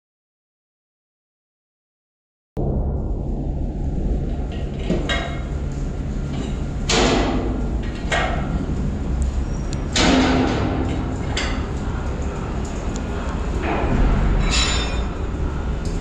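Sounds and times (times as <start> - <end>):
low rumble: 2.6 - 16.0
metal lashing gear clanking: 13.6 - 15.3.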